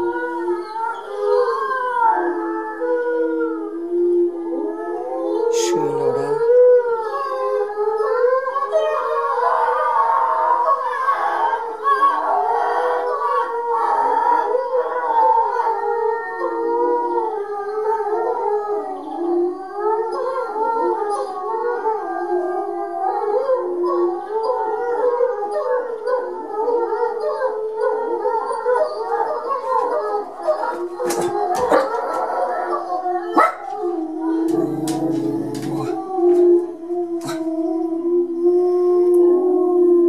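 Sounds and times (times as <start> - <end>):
small dog howling: 0.0 - 40.0.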